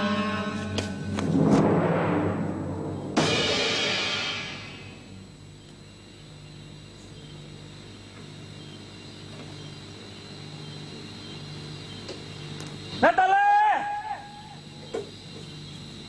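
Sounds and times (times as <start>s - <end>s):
faint slow pulse: 0.0s - 5.4s
low steady hum: 0.0s - 7.3s
dramatic drum hit: 0.6s - 5.2s.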